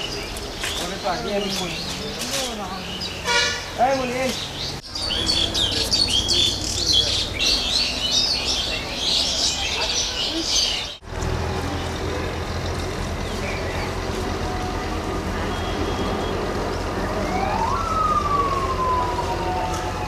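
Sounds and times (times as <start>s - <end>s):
siren-like wail: 14.5s - 20.0s.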